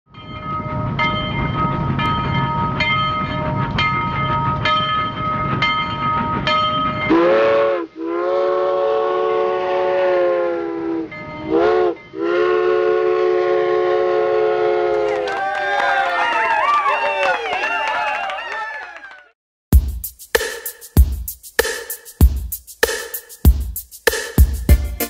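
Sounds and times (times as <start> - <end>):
train steady whine: 0.1 - 15.3
train horn blasts: 7.1 - 15.2.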